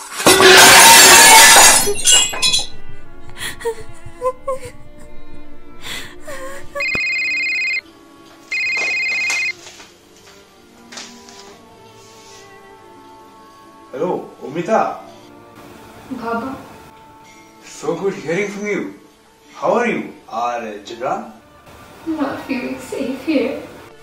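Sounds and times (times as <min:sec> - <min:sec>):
broken pieces clattering: 0:00.0 - 0:02.7
plates smashing on hard floor: 0:00.0 - 0:02.7
soft background music: 0:01.8 - 0:24.0
woman sobbing: 0:03.4 - 0:05.2, 0:05.8 - 0:07.1
electronic phone ringing: 0:06.8 - 0:07.9, 0:08.5 - 0:09.6.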